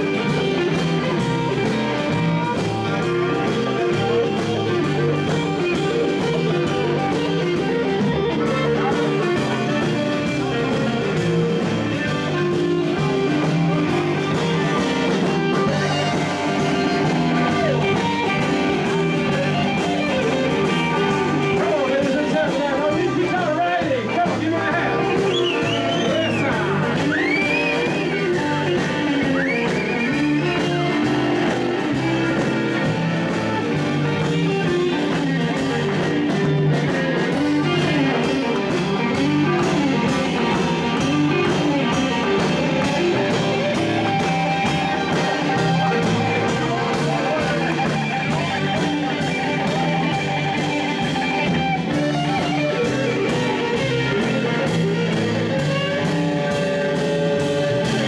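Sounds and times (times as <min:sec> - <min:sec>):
drums: 0:00.0 - 0:58.0
electric bass: 0:00.0 - 0:58.0
electric guitars: 0:00.0 - 0:58.0.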